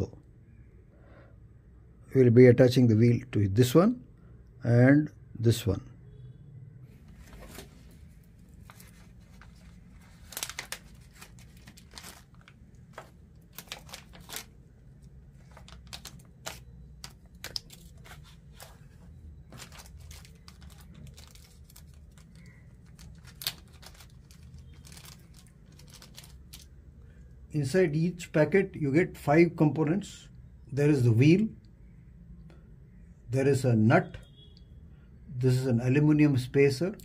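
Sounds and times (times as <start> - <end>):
plastic packet crinkling: 8.5 - 26.8.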